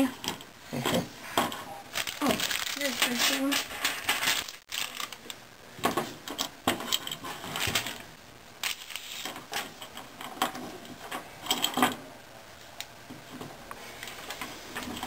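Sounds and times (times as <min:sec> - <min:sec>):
plastic bag crinkling: 0:01.9 - 0:05.4.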